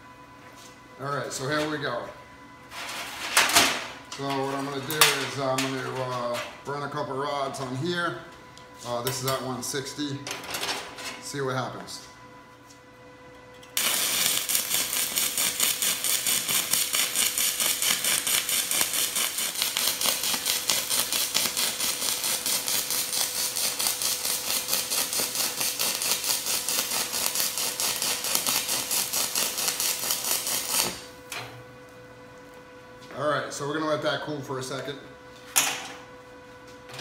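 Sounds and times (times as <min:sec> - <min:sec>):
welding arc crackling hiss: 0:13.8 - 0:31.2.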